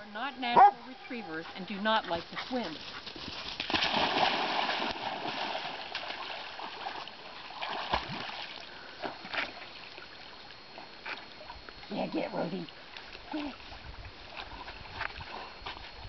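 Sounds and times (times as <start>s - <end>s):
dogs swimming sloshing: 0.5s - 16.0s
dogs splashing into water: 3.6s - 10.1s.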